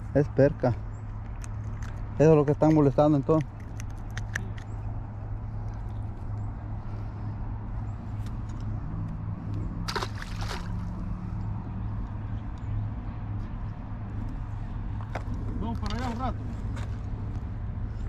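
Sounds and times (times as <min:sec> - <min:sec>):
steady low hum: 0:00.0 - 0:18.0
fish splashing into water: 0:09.8 - 0:11.0.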